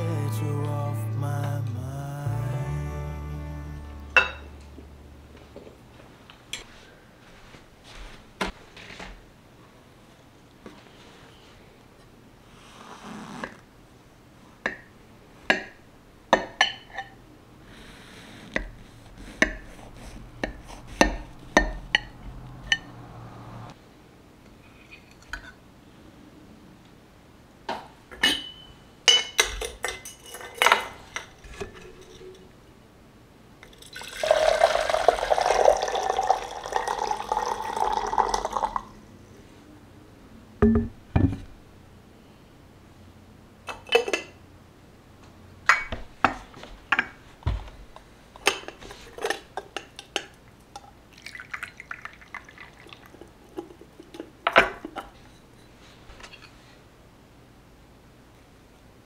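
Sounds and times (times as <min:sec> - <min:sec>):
glass and china clinking: 0:04.2 - 0:04.5, 0:28.2 - 0:30.9, 0:33.8 - 0:38.7
tableware tapping: 0:04.2 - 0:04.6, 0:15.5 - 0:15.8, 0:20.4 - 0:22.9, 0:28.1 - 0:32.4, 0:40.6 - 0:41.5
water pouring into teapot: 0:33.6 - 0:39.0, 0:51.1 - 0:53.4.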